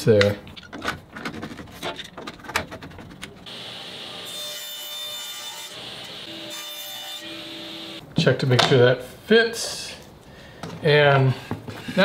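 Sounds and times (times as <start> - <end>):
table saw cutting plastic: 3.5 - 8.0.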